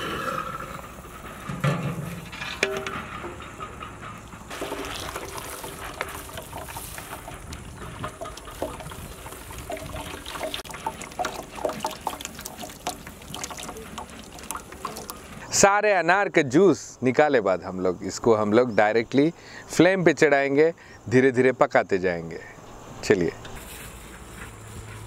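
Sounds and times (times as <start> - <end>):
juice pouring through strainer: 4.5 - 15.4.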